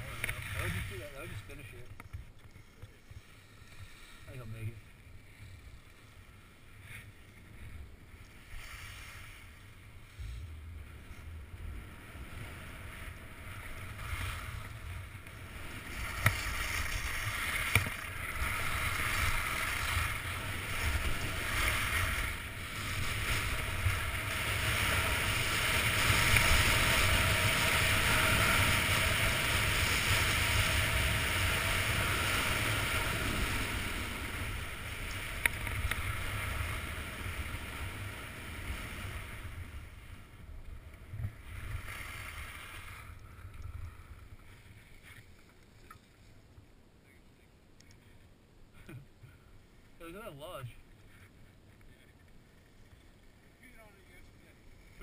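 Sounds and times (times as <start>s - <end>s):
skis carving on snow: 0.0s - 1.9s, 2.5s - 45.3s.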